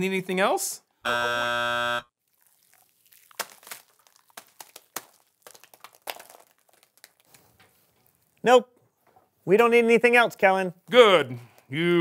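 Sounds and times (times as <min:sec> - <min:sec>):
buzzer tone: 0:01.0 - 0:02.1
slime pouring with wet splats: 0:02.2 - 0:08.4.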